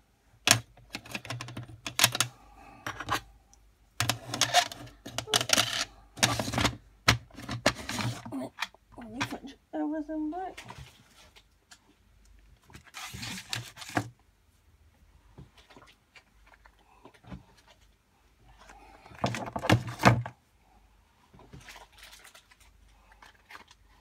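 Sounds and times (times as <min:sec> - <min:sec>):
rustling of packaging: 0:10.6 - 0:14.2.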